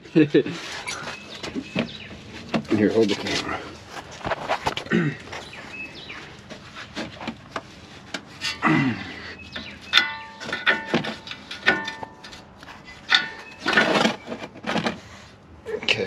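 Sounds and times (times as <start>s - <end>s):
hand tools clicking and knocking: 6.4s - 15.0s.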